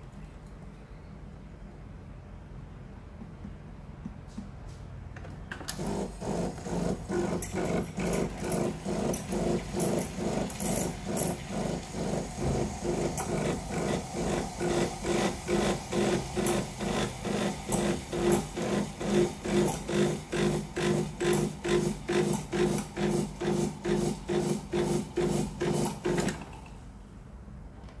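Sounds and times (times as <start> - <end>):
steam wand hissing: 8.8 - 18.9.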